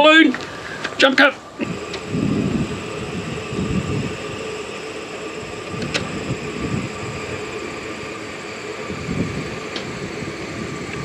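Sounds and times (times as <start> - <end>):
thin high whine: 0.0 - 11.0
wind rumbling on microphone: 1.6 - 11.0
sharp click: 5.7 - 6.1.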